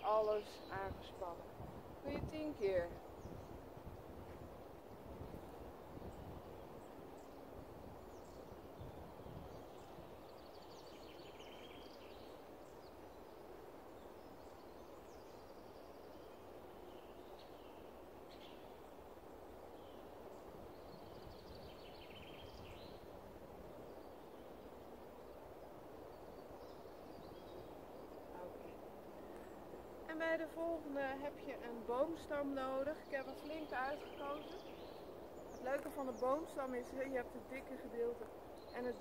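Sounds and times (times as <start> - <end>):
low background hiss: 0.0 - 39.0
songbirds singing: 0.0 - 39.0.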